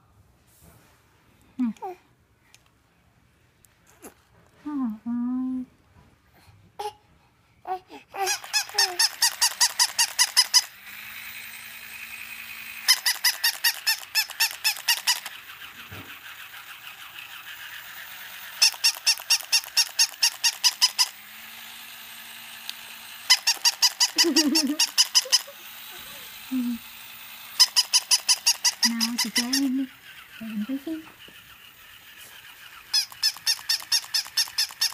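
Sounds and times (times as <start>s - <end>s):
toy puppy electronic yaps: 8.2s - 10.9s, 12.2s - 21.3s, 22.7s - 34.9s
whirring hum: 8.2s - 34.9s.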